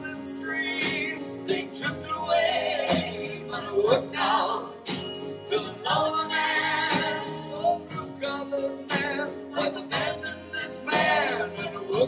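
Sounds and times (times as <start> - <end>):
live band playing: 0.0 - 12.0
women singing: 2.2 - 8.1, 8.9 - 12.0.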